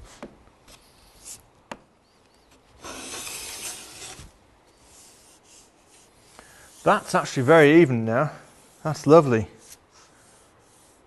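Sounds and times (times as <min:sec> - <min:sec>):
short scrape: 0:02.8 - 0:04.4
plane hissing along wood: 0:02.8 - 0:11.0.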